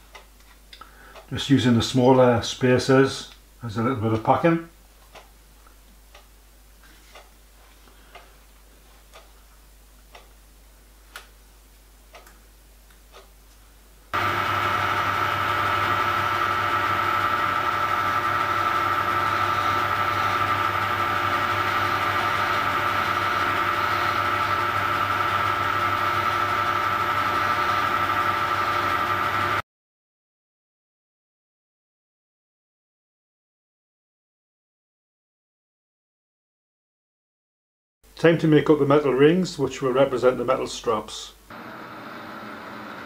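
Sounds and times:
file on spinning discs: 0:14.2 - 0:29.6
lathe whining: 0:14.2 - 0:29.6, 0:41.5 - 0:43.0.

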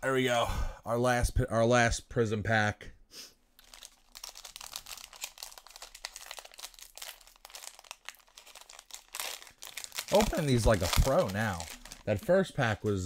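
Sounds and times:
foil wrapper tearing and crinkling: 0:03.6 - 0:12.2.

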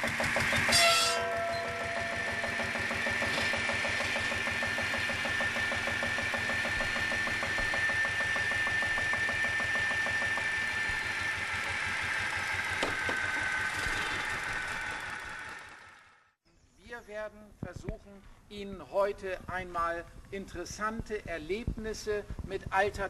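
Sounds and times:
saw blade whining: 0:00.0 - 0:16.2
small engine running: 0:00.0 - 0:16.4.

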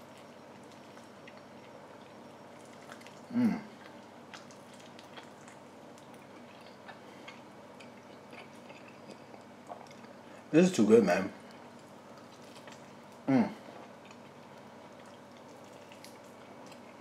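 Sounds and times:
man chewing: 0:00.0 - 0:10.5, 0:11.4 - 0:17.0
man humming: 0:03.3 - 0:03.7.

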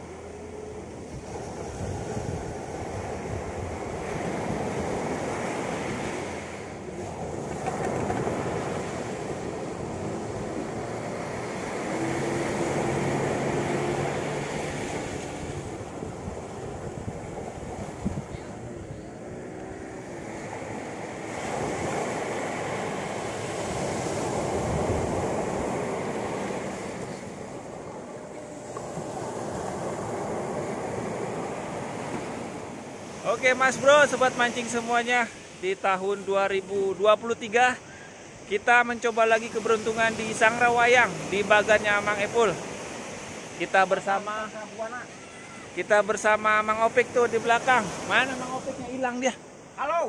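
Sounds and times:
wind on microphone: 0:00.0 - 0:33.2
sea surf breaking: 0:00.0 - 0:50.0.

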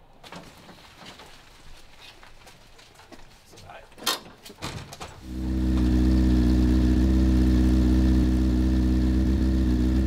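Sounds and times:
car engine idling: 0:05.2 - 0:10.0.

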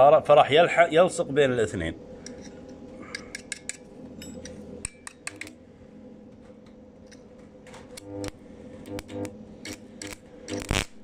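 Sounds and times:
steady low hum: 0:00.0 - 0:11.0
welding electrode clicks and crackles: 0:07.8 - 0:11.0.

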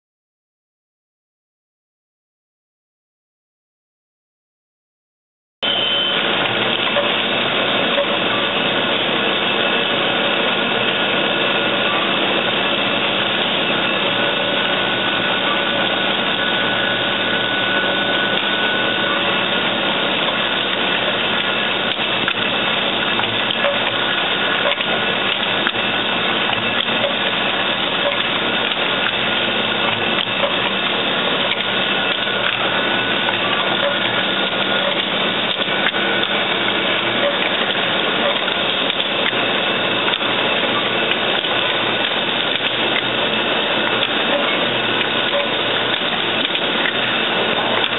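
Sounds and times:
machine hum: 0:05.6 - 0:47.9
machine clatter of fine ticks: 0:43.8 - 0:47.0.

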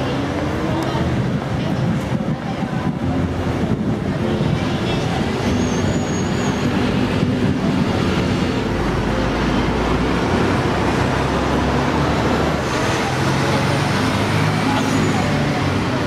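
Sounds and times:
deep vehicle rumble: 0:00.0 - 0:16.0
street traffic passing: 0:00.0 - 0:16.0.

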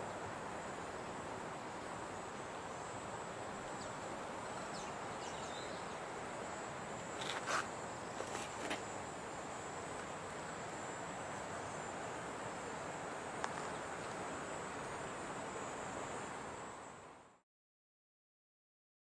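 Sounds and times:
insect chirring: 0:00.0 - 0:17.1
background hiss: 0:00.0 - 0:17.4.

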